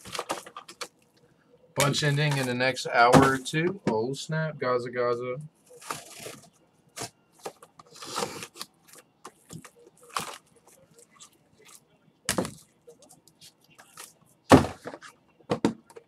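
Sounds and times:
wrappers rustling and crinkling: 0:00.0 - 0:01.0, 0:05.6 - 0:14.3.

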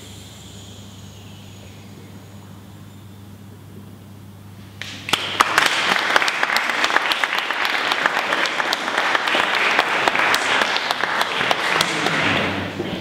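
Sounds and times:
audience clapping: 0:04.8 - 0:12.8.

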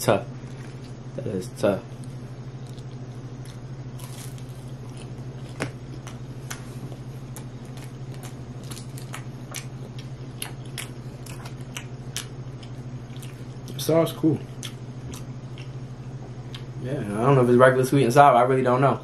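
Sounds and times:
low hum: 0:00.0 - 0:17.8
chewing: 0:02.0 - 0:13.8, 0:14.4 - 0:16.7.

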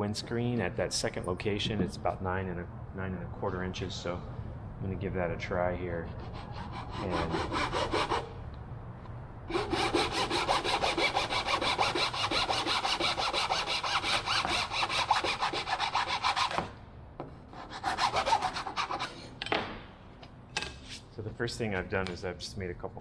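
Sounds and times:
hand saw cutting wood: 0:06.1 - 0:08.3, 0:09.5 - 0:16.7, 0:17.6 - 0:19.3.

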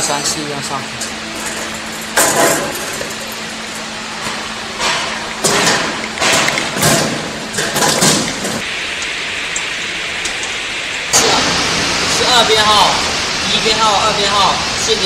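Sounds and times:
steady background hiss: 0:00.0 - 0:15.0
metal panels thudding and knocking: 0:04.3 - 0:08.6.

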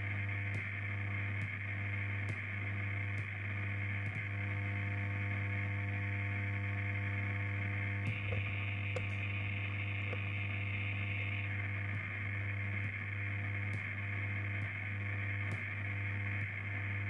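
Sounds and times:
electronic drone with low hum: 0:00.0 - 0:17.0
static-like hiss: 0:00.0 - 0:17.0.

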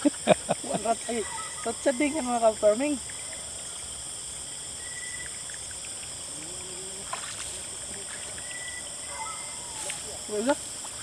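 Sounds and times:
night insects chorus: 0:00.0 - 0:11.0
faint trickling water: 0:00.7 - 0:11.0.

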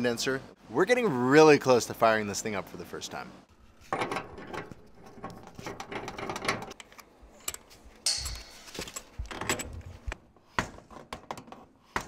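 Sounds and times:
metal scrape: 0:08.1 - 0:09.2.

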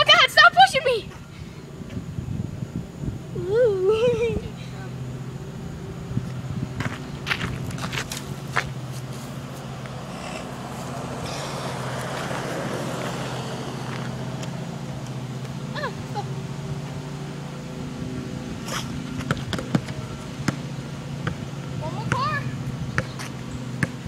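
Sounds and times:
car passing: 0:04.5 - 0:24.0
basketball bouncing on pavement: 0:06.3 - 0:11.0, 0:19.1 - 0:24.0.

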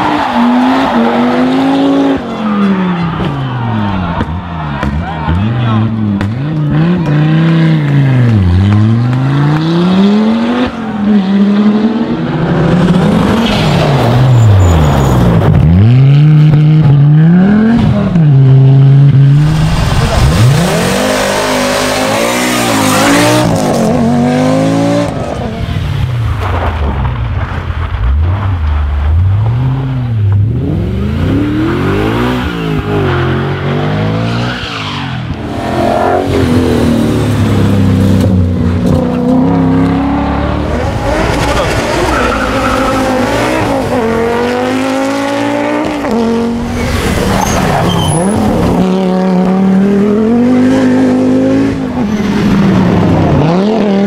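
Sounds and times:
rally car engines revving: 0:00.0 - 0:54.0
loud rushing noise: 0:19.3 - 0:33.1.

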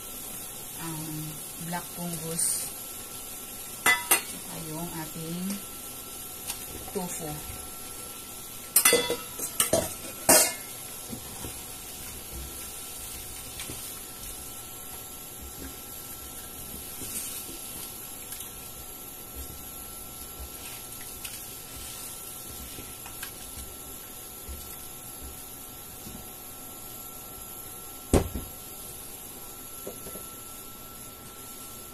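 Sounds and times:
steel bowl clattering on pan: 0:08.8 - 0:10.7.

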